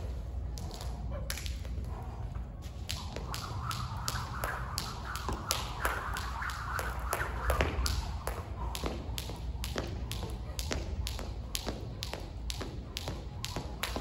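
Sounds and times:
jump rope slapping hard floor: 2.9s - 14.0s.

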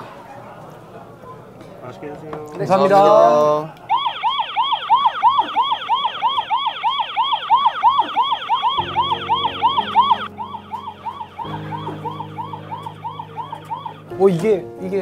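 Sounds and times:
electronic alarm wailing: 3.9s - 14.1s.

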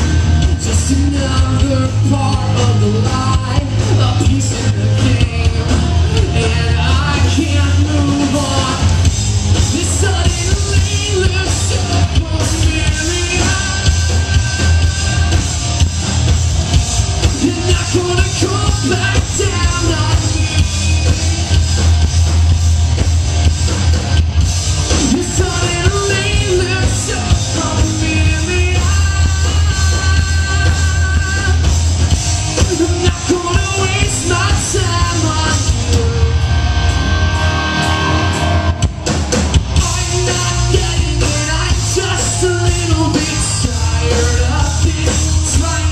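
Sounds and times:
drums: 0.0s - 45.9s
electric guitars: 0.0s - 45.9s
person singing: 0.6s - 9.0s, 24.9s - 31.7s, 32.5s - 37.0s.

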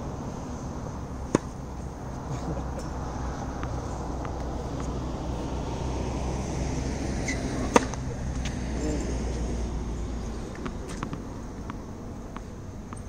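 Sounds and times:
low background rumble: 0.0s - 13.0s
tennis racket hitting ball: 1.2s - 1.8s, 3.6s - 6.6s, 7.2s - 8.5s, 10.5s - 13.0s.

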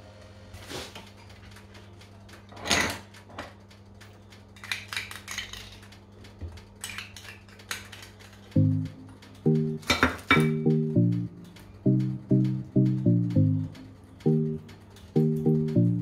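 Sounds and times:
faint low hum: 8.2s - 16.0s.

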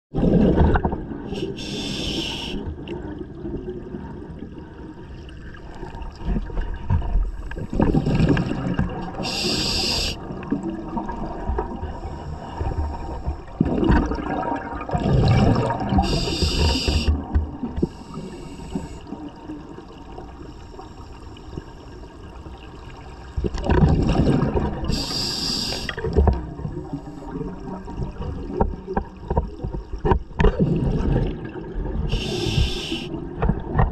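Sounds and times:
exhaled air bubbling: 0.1s - 33.9s
regulator inhale hiss: 1.3s - 2.7s, 9.1s - 10.2s, 11.8s - 13.3s, 16.0s - 17.2s, 17.8s - 19.2s, 24.9s - 26.0s, 32.1s - 33.2s.

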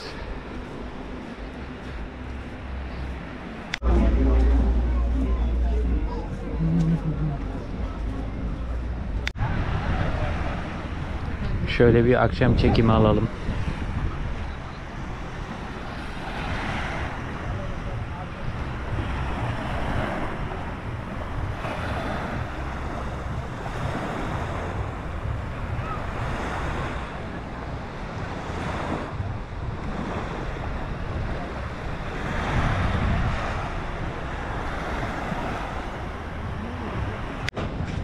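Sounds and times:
wind rumbling on microphone: 0.0s - 38.0s
small waves washing onto shore: 12.6s - 37.6s.

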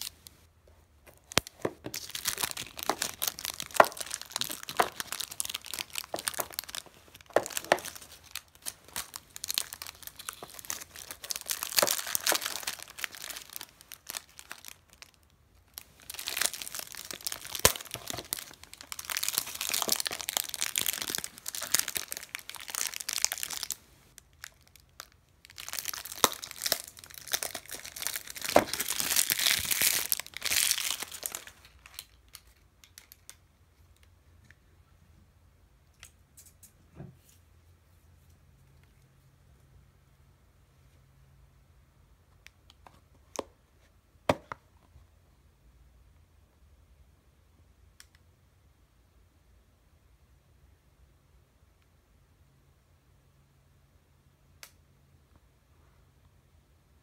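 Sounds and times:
plastic shrink wrap crinkling: 1.1s - 33.4s.

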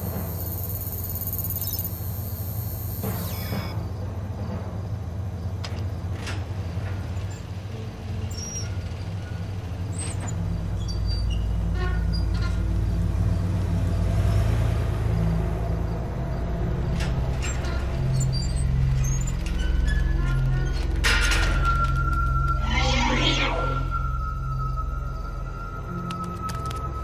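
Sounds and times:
faint high clicks and chirps: 0.4s - 3.6s.

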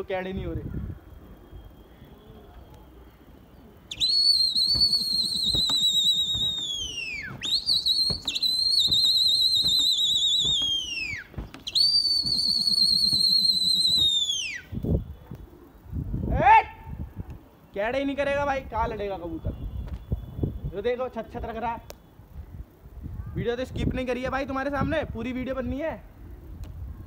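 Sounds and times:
warbling human whistle: 3.9s - 15.1s.

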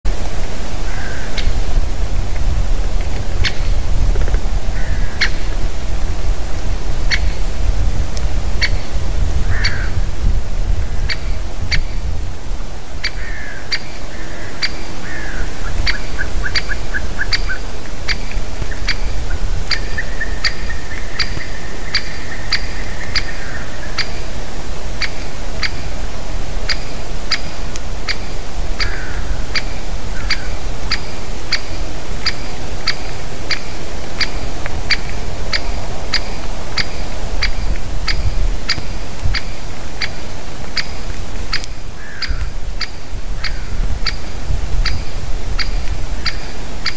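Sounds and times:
wind rumbling on microphone: 0.0s - 46.9s
distant birds calling: 0.5s - 2.1s, 2.8s - 7.7s, 8.4s - 46.9s
woodpecker sharp calls: 3.4s - 3.8s, 4.7s - 5.6s, 7.0s - 7.4s, 8.6s - 10.0s, 10.8s - 12.1s, 13.0s - 24.4s, 25.0s - 26.0s, 26.6s - 46.9s.

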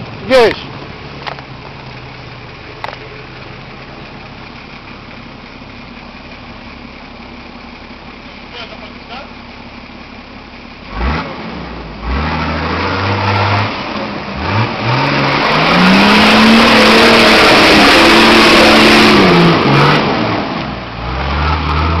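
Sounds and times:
diesel truck engine revving: 10.6s - 22.0s.

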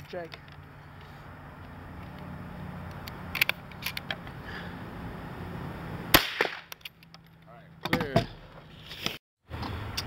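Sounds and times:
rifle shots cracking: 6.1s - 6.7s.

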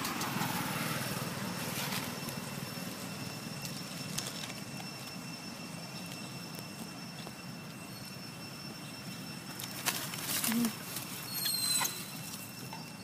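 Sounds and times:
outdoor background noise: 0.0s - 13.0s
rustling in dry leaf litter: 0.1s - 6.9s, 9.4s - 12.6s
faint high steady tone: 0.6s - 13.0s.

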